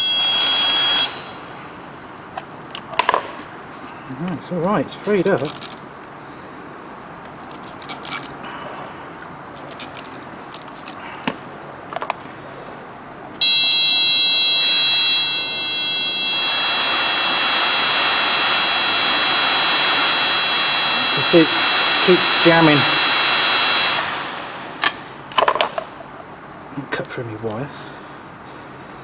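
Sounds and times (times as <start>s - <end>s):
blower motor whining: 0.0s - 2.0s, 13.4s - 25.3s
rush of air from fan: 15.4s - 26.2s.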